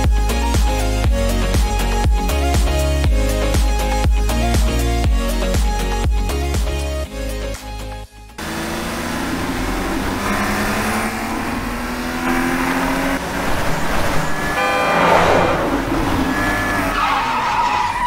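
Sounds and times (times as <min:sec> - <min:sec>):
car engine revving: 0:08.4 - 0:17.7
tyres squealing and skidding: 0:08.8 - 0:18.0.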